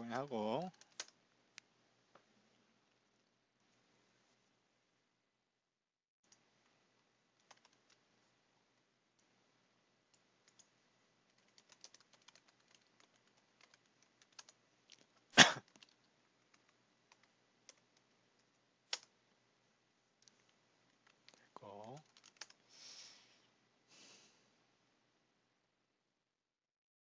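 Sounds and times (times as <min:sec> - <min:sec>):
typing on a keyboard: 0:00.6 - 0:01.2, 0:07.4 - 0:08.0, 0:10.1 - 0:10.7, 0:11.3 - 0:19.1, 0:20.2 - 0:22.6.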